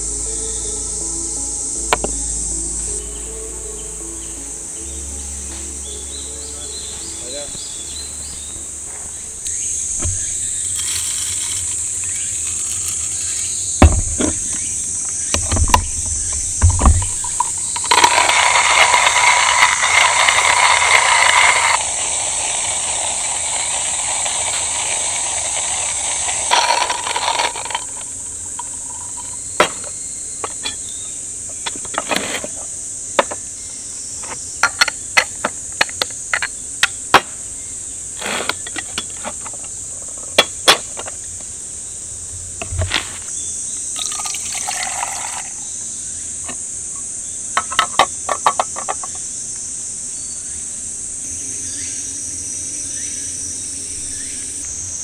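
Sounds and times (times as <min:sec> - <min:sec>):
insects chirring: 0:00.0 - 0:55.0
water being poured: 0:16.7 - 0:28.0, 0:44.0 - 0:45.6.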